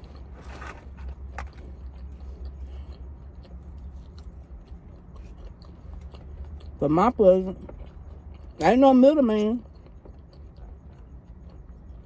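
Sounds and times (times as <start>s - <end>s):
person chewing food: 0.0s - 12.0s
steady low hum: 0.0s - 12.0s.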